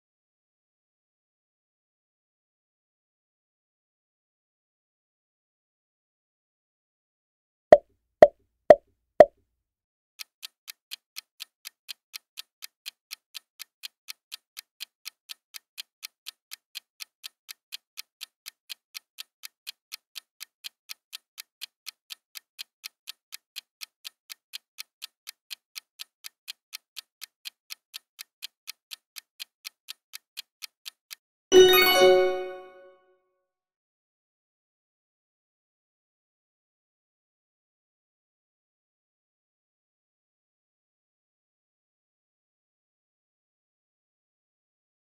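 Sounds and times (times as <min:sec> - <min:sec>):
clock-like ticking: 0:10.2 - 0:32.6
chime ringing: 0:31.5 - 0:32.9.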